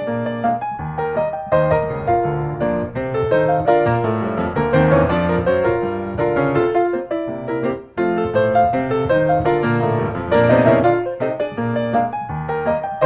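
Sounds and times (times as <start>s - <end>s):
gentle piano music: 0.0s - 13.0s.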